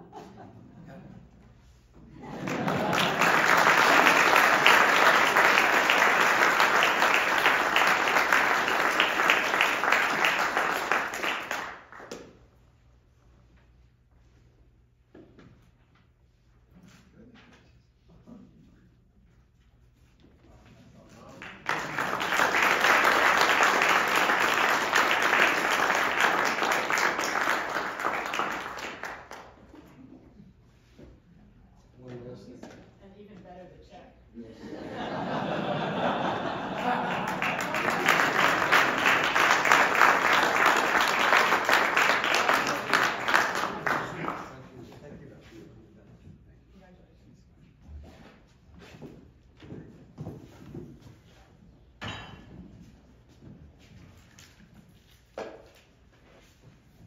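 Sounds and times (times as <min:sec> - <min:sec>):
audience applauding: 0:02.4 - 0:12.2, 0:21.3 - 0:29.7, 0:35.6 - 0:44.8.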